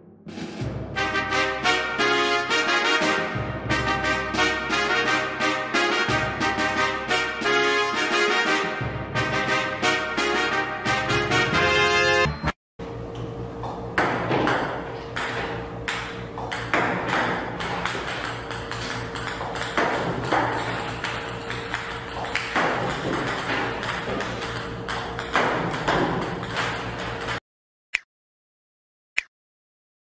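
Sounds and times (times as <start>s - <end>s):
ping-pong balls clicking: 14.0s - 27.4s.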